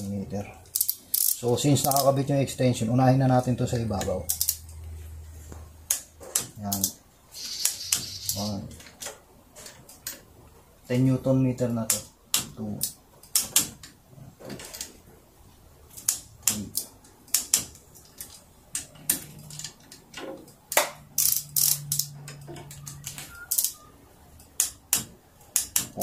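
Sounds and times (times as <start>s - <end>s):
torque wrench ratchet clicks: 0.7s - 2.1s, 21.2s - 22.1s.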